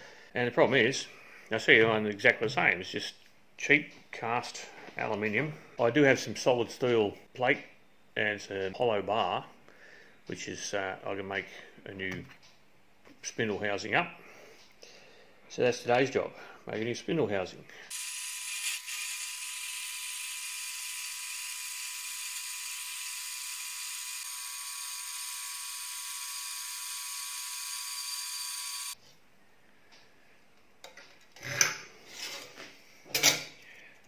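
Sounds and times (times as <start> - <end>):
bandsaw cutting steel: 17.9 - 29.0.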